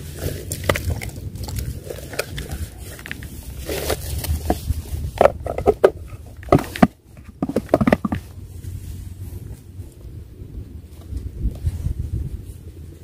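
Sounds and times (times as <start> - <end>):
plastic bucket and gear handling: 0.0 - 8.4
wind rumble on microphone: 0.0 - 13.0.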